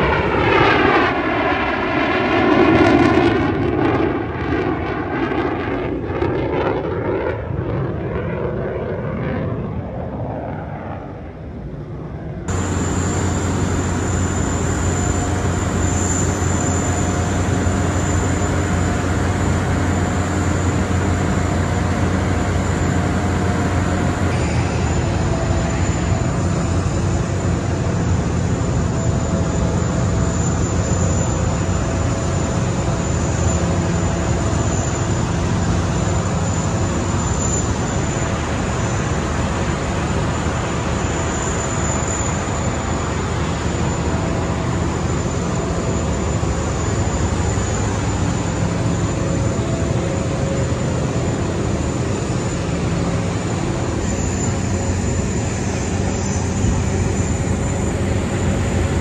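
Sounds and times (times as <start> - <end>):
aircraft engine rush: 0.0 - 59.0
faint high whine: 12.2 - 59.0.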